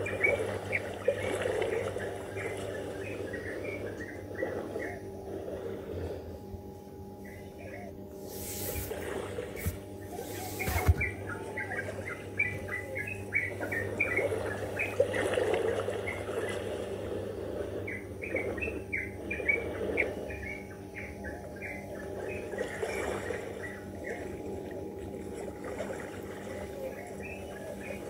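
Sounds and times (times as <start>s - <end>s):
steady low hum: 0.0s - 28.0s
small birds chirping: 9.6s - 16.7s, 17.8s - 24.3s.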